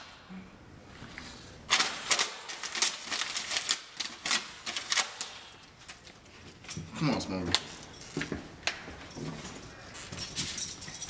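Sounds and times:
paper crackling and rustling: 1.7s - 6.4s.

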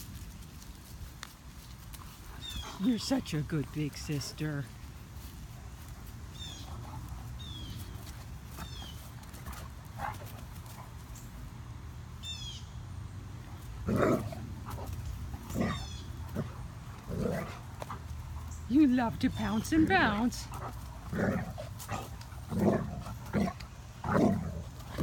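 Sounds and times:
bird chirping: 12.2s - 12.8s
dog play vocalizations: 13.8s - 25.0s.

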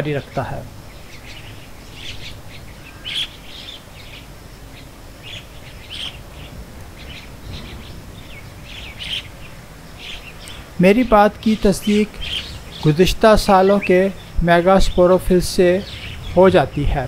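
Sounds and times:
small birds chirping: 0.0s - 17.0s
low background rumble: 5.4s - 11.5s, 12.1s - 17.0s.

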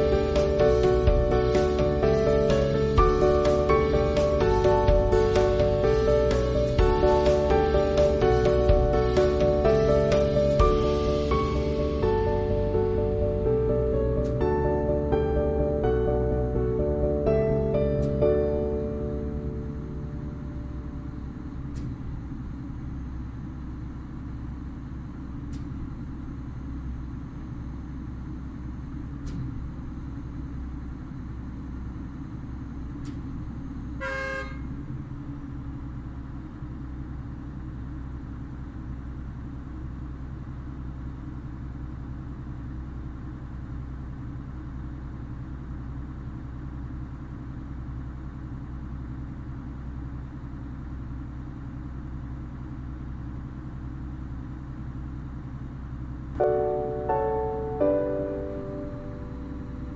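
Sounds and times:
heavy machinery engines rumbling: 0.0s - 59.9s
short vehicle horn beep: 34.0s - 34.7s.

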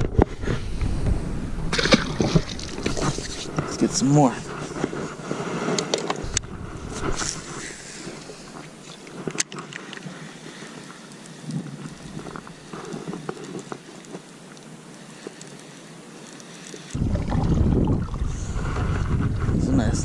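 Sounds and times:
water movement: 0.0s - 19.8s.

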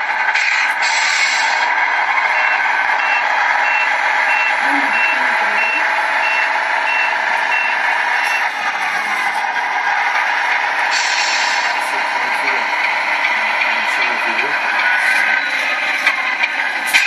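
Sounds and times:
simulated diesel engine: 0.0s - 17.0s
reversing alarm beeps: 2.3s - 8.6s, 15.2s - 15.7s.

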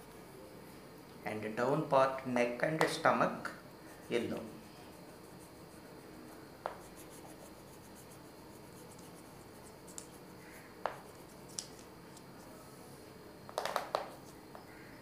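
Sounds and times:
crayon scribbling on paper: 3.9s - 10.2s.

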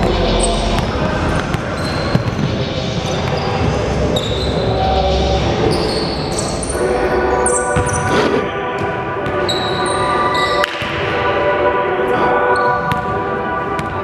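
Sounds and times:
sneaker squeaks: 1.5s - 4.8s, 5.6s - 8.2s, 9.3s - 10.8s, 12.5s - 13.1s.

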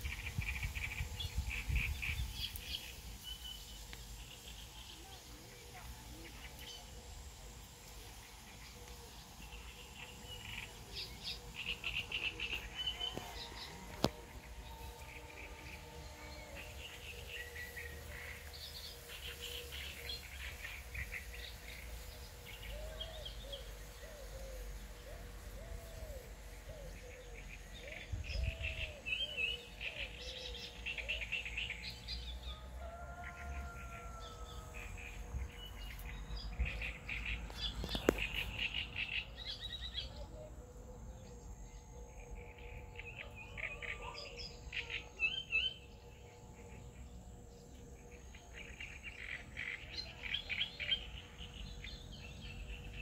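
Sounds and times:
small birds chirping: 35.2s - 42.0s.

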